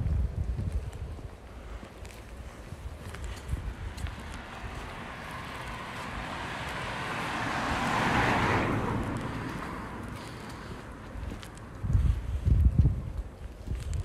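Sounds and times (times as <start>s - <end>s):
car driving past: 4.0s - 11.8s.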